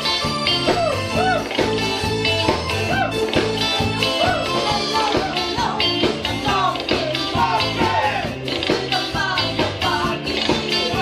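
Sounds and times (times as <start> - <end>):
bass guitar: 0.0 - 11.0
drums: 0.0 - 11.0
guitar: 0.0 - 11.0
keyboard: 0.0 - 11.0
women singing: 4.2 - 11.0.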